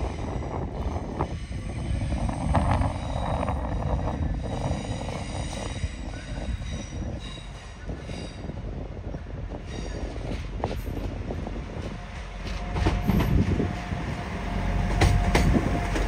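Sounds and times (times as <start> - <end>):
train rumbling on rails: 0.0 - 16.0.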